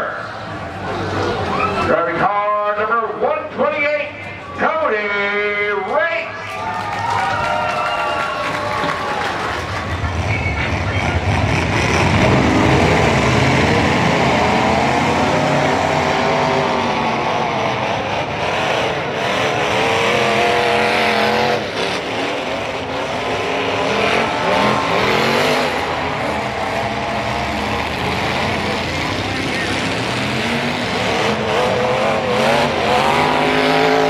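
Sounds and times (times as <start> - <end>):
car engines revving: 0.0 - 34.0.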